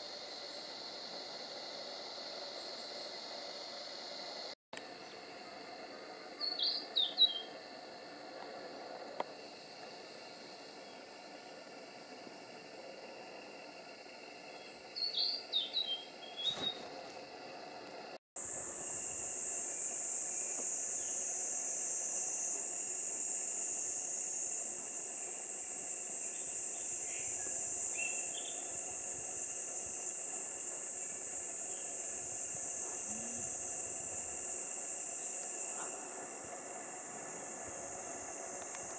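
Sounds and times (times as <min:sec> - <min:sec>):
cicadas buzzing: 0:00.0 - 0:38.9
faint bird chirps: 0:06.4 - 0:07.5, 0:14.5 - 0:16.8.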